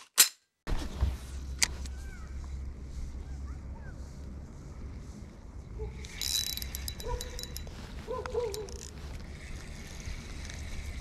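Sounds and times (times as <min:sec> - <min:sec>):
fishing reel whirring and clicking: 0:06.0 - 0:11.0.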